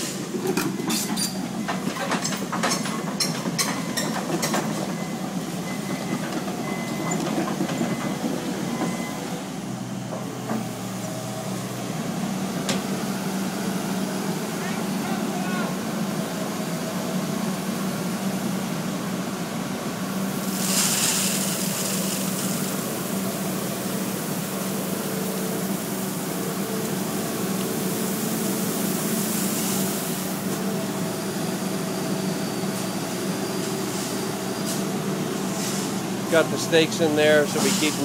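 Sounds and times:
excavator diesel engine running: 0.0s - 38.0s
rushing hiss: 20.4s - 23.5s, 37.4s - 38.0s.

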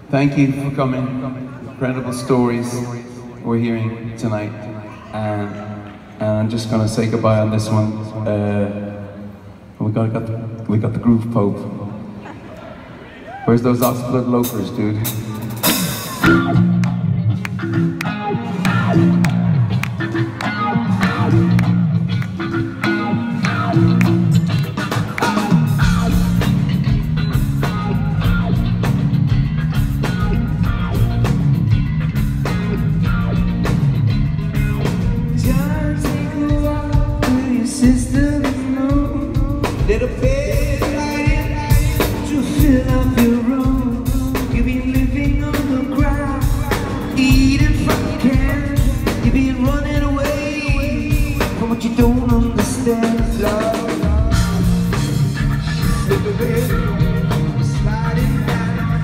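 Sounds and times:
live rock band playing: 0.0s - 9.8s, 13.6s - 59.0s
man singing: 34.8s - 59.0s.

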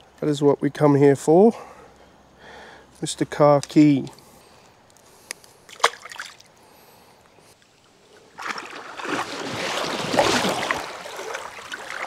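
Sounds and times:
water splashing and sloshing: 5.7s - 6.6s, 7.6s - 12.0s.

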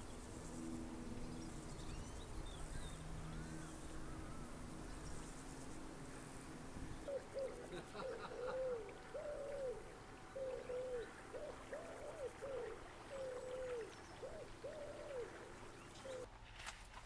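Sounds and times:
pigeon cooing: 7.1s - 16.3s.

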